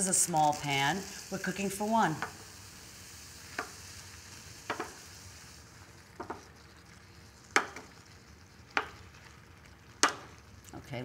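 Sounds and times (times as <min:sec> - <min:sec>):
sauce sizzling in a skillet: 0:00.0 - 0:11.0
wooden spoon knocking on pan: 0:04.7 - 0:05.0, 0:06.2 - 0:06.4, 0:07.6 - 0:07.9, 0:08.7 - 0:09.0, 0:10.0 - 0:10.3.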